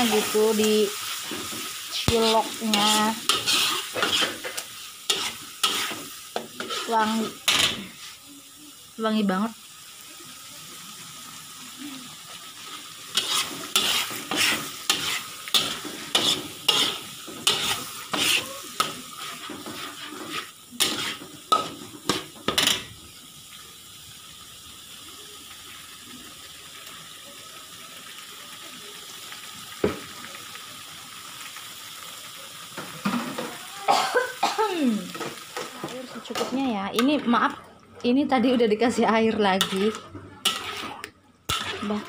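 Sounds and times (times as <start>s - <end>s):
metal spoon scraping a pan: 0.0s - 8.2s, 12.6s - 22.9s, 39.3s - 42.0s
paste sizzling in a pan: 0.0s - 42.0s.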